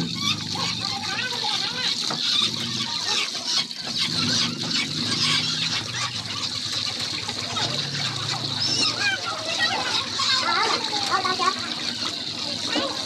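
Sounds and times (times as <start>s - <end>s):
tap water running into a basin: 0.0s - 13.0s.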